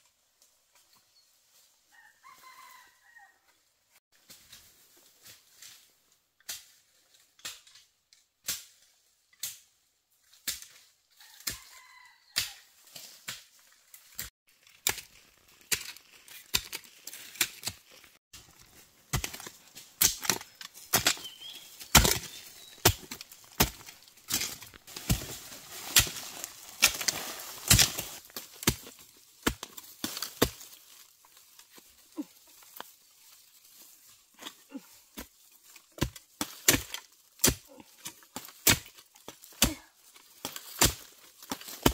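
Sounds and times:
hoe chopping into soil: 18.4 - 31.0, 36.0 - 41.9.

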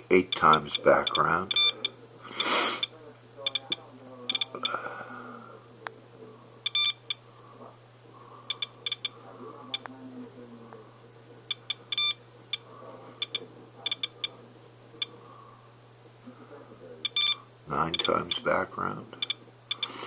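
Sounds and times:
radiation detector beeping: 0.2 - 2.9, 3.5 - 4.8, 6.6 - 7.2, 8.4 - 9.8, 11.5 - 14.4, 17.0 - 18.2.

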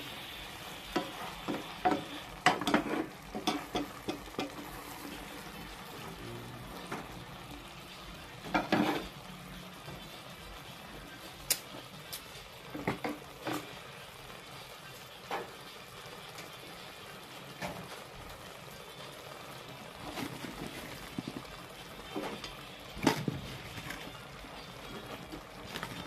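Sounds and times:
stew simmering in a pot: 0.0 - 26.0
wooden spoon knocking on a pot: 1.0 - 4.6.

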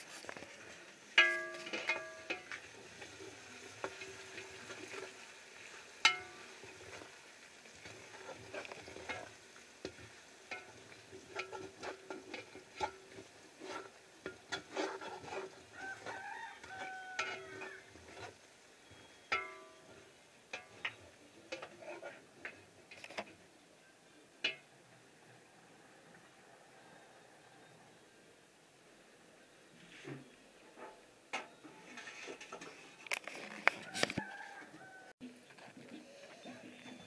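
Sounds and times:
spatula scraping pot: 0.0 - 7.2, 7.8 - 23.4, 29.8 - 35.0
onions sizzling in oil: 0.0 - 22.9.

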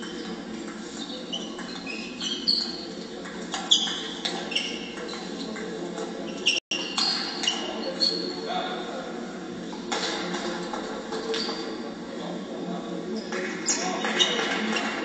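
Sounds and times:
shoes squeaking on floor: 0.0 - 8.4
steady hall hum: 0.0 - 15.0.

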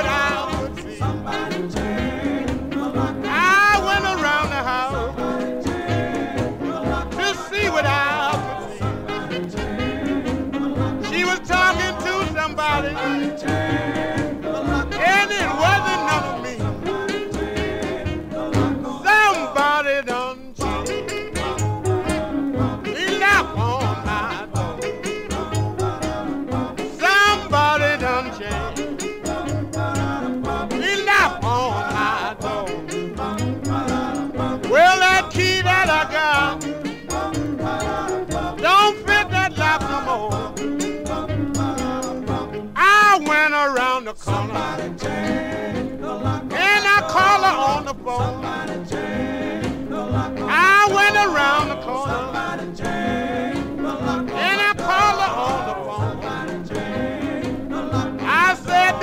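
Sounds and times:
bass line: 0.0 - 42.9, 44.3 - 59.0
band with steady beat: 0.0 - 43.4, 44.3 - 59.0
vocal group harmony singing: 0.0 - 59.0
drum beat: 5.7 - 19.8, 45.9 - 59.0.

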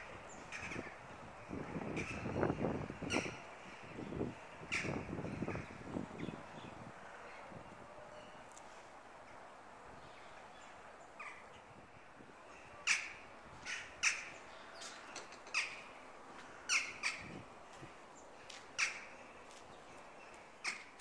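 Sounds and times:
crows calling: 0.0 - 4.0, 4.6 - 6.3, 10.1 - 21.0.

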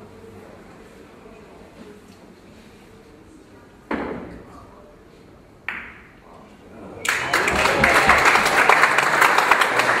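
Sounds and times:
audience applauding: 7.0 - 10.0.

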